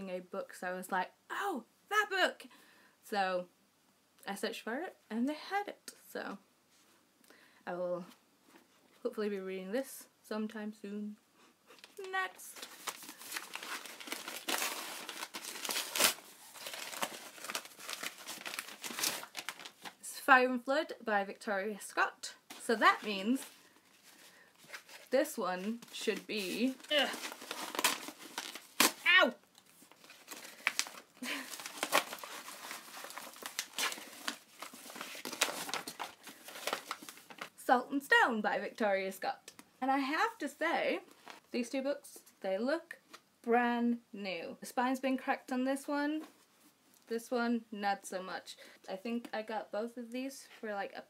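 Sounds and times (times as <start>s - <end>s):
package being torn and crinkled: 12.6s - 20.0s, 24.6s - 37.5s.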